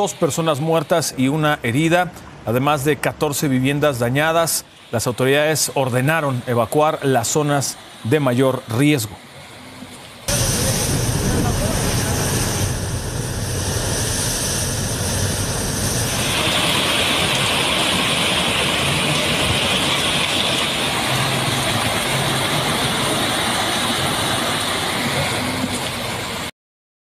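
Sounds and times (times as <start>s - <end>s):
heavy rain pouring: 10.1s - 26.5s
low rumble: 10.3s - 20.3s
surf breaking on rocks: 14.3s - 25.6s.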